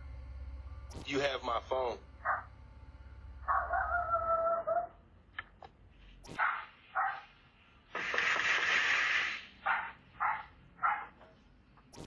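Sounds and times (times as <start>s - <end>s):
dog barking: 2.2s - 2.5s, 3.5s - 5.0s, 6.3s - 7.4s, 9.6s - 11.4s.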